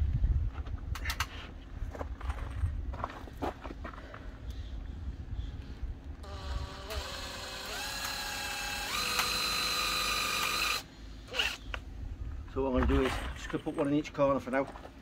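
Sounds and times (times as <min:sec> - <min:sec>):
cordless drill driving a screw: 0:06.2 - 0:11.6.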